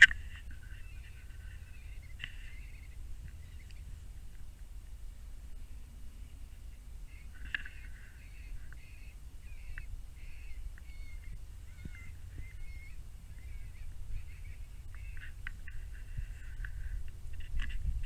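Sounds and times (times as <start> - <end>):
electronic wavering animal cries: 7.1 - 15.4.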